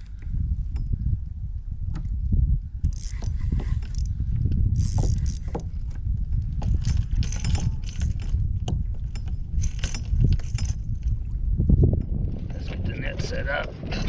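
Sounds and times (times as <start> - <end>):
wind rumbling on microphone: 0.0 - 14.0
fishing reel clicking and rattling: 2.8 - 5.7, 6.6 - 11.2.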